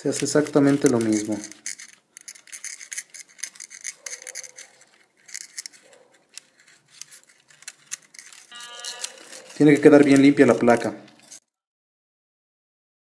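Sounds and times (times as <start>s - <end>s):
soldering iron crackling on braid: 8.4s - 11.2s.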